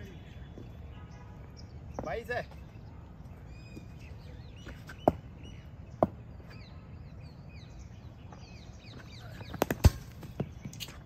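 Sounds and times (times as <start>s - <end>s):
birds chirping: 0.0s - 11.0s
cricket ball bouncing on concrete: 9.4s - 11.0s
bat striking ball: 9.6s - 10.4s.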